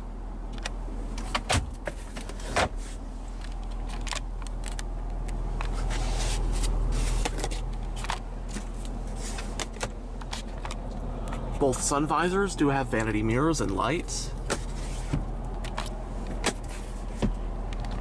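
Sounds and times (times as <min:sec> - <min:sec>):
road and drivetrain rumble: 0:00.0 - 0:18.0
glove box clicks and knocks: 0:00.5 - 0:02.8, 0:06.6 - 0:11.5, 0:14.4 - 0:18.0.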